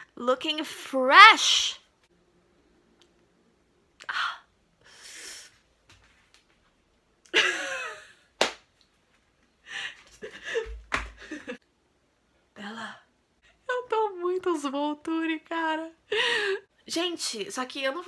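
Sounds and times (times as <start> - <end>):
woman laughing: 7.3 - 8.2
woman breathing and sighing: 9.6 - 11.4, 16.1 - 16.7.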